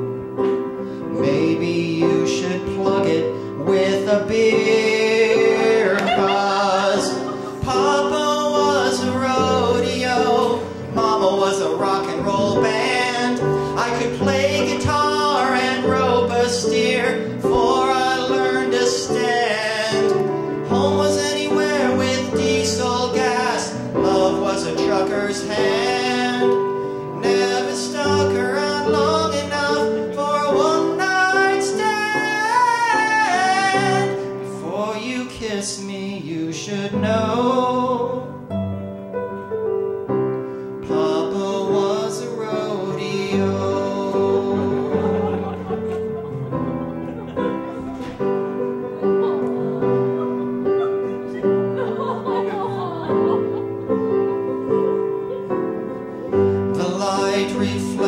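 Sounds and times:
recorded backing track: 0.0s - 58.0s
man and woman singing operatically: 1.2s - 38.3s, 40.8s - 46.2s, 56.5s - 58.0s.

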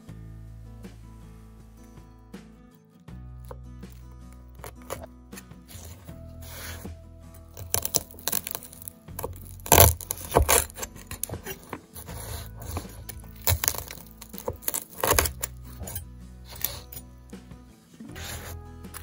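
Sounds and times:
background music: 0.0s - 19.0s
knife crunching through fried coating: 3.9s - 5.1s, 7.6s - 17.0s.

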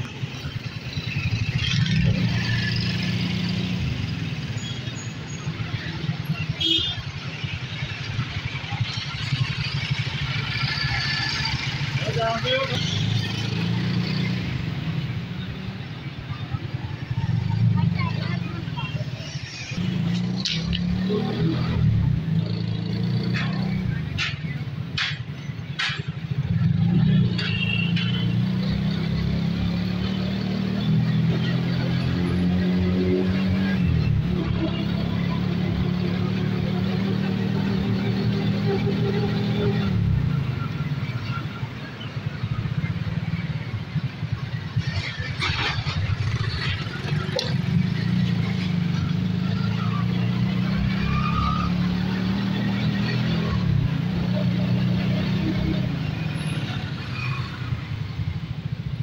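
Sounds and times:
motorcycle and rickshaw engines: 0.0s - 59.0s
motorcycle engine puttering: 44.0s - 49.7s.

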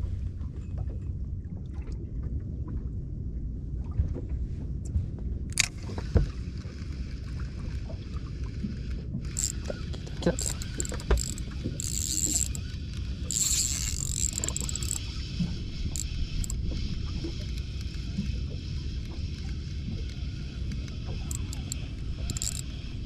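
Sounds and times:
boat engine low rumble: 0.0s - 23.0s
sharp click: 5.5s - 5.8s, 20.7s - 22.7s.

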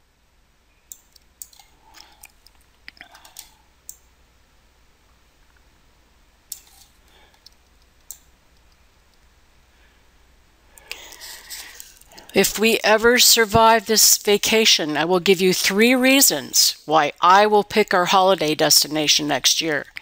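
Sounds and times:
computer mouse clicks: 0.9s - 4.0s.

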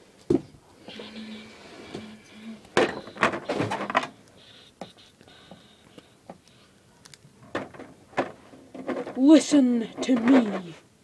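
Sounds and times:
plastic figures clicking and knocking: 7.0s - 10.7s.

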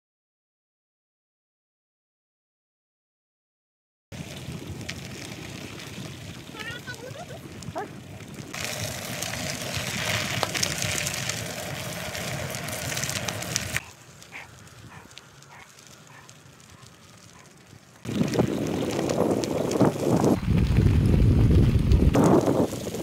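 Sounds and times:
bicycle tyres on gravel: 4.1s - 23.0s
wind on microphone: 18.0s - 23.0s.

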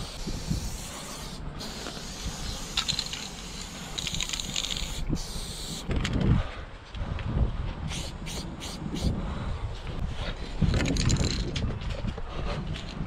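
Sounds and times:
spray paint can hissing: 0.0s - 5.9s, 7.9s - 9.2s.

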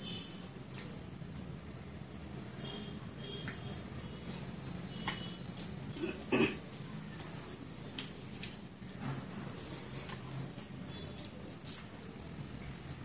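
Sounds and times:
chewing with wet clicks: 5.0s - 9.0s, 9.9s - 13.0s.

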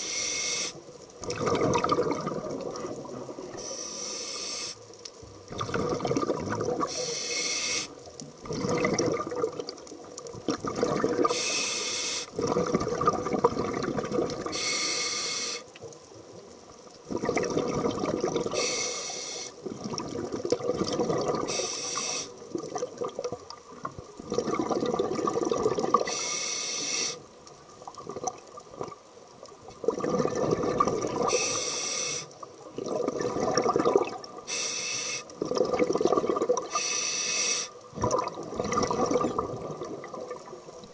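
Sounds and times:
regulator inhalation hiss: 0.0s - 0.9s, 3.6s - 4.9s, 6.9s - 8.0s, 11.3s - 12.4s, 14.5s - 15.7s, 18.5s - 19.6s, 21.5s - 22.4s, 26.0s - 27.3s, 31.3s - 32.4s, 34.5s - 35.4s, 36.7s - 37.8s
gurgling exhaled bubbles: 1.2s - 3.6s, 5.4s - 7.0s, 8.4s - 11.5s, 12.3s - 14.6s, 17.0s - 18.8s, 19.6s - 21.7s, 22.4s - 26.1s, 27.8s - 29.0s, 29.6s - 31.4s, 32.6s - 34.5s, 35.3s - 36.8s, 37.9s - 40.9s.

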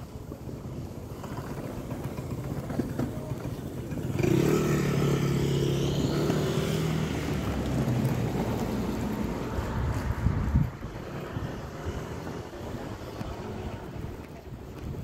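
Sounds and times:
vehicle engine passing by: 3.9s - 13.9s.

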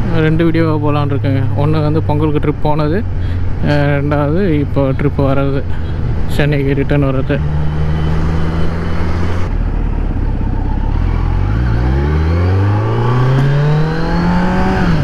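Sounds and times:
motorcycle engine revving: 6.9s - 15.0s.

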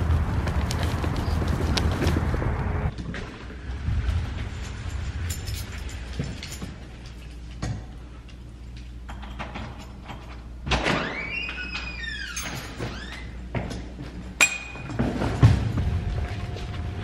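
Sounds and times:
wagon rolling over carpet: 0.0s - 2.5s
frame and load rattling: 3.0s - 10.7s.

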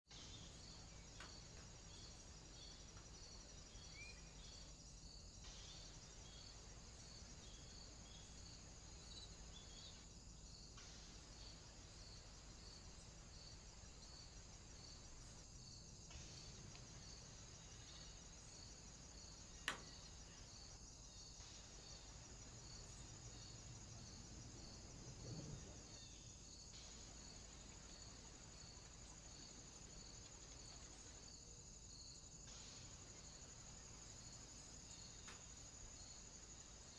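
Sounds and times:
insects chirping: 0.1s - 36.9s
low hiss: 0.1s - 36.9s.

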